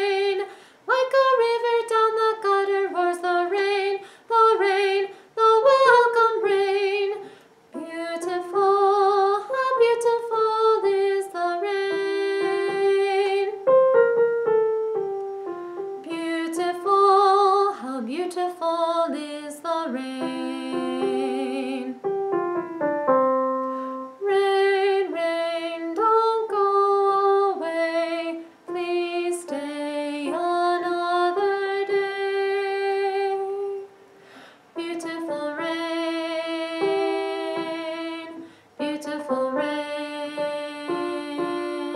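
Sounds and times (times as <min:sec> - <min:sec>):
woman singing with vibrato: 0:00.0 - 0:13.7, 0:16.0 - 0:22.0, 0:24.1 - 0:34.0, 0:34.7 - 0:41.9
piano accompaniment: 0:07.8 - 0:17.7, 0:19.8 - 0:34.0, 0:34.8 - 0:41.9.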